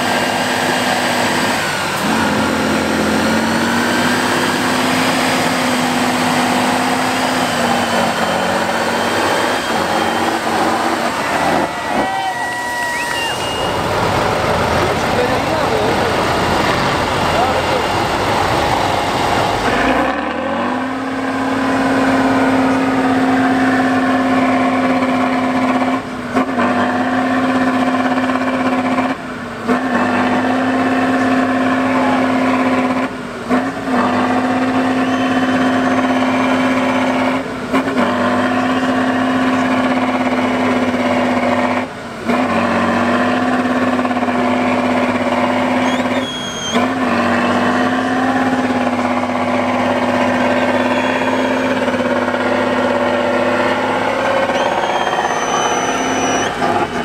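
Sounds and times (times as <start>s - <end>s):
diesel truck engine at high revs: 0.0s - 57.0s.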